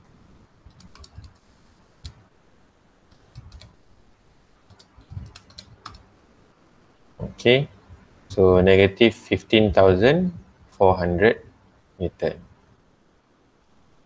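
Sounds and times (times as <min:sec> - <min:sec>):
faint key presses: 0:00.7 - 0:01.4, 0:03.2 - 0:03.8, 0:04.7 - 0:06.1.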